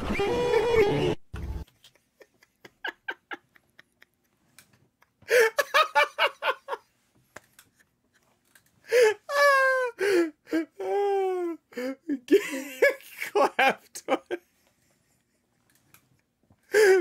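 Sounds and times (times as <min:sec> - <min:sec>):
man laughing hard: 0:01.7 - 0:06.9, 0:08.9 - 0:15.4, 0:16.7 - 0:17.0.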